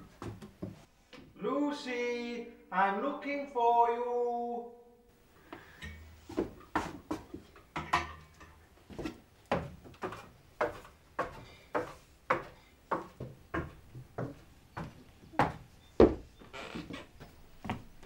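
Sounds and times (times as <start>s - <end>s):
footsteps on wooden stairs: 0.0s - 1.3s, 6.2s - 18.0s.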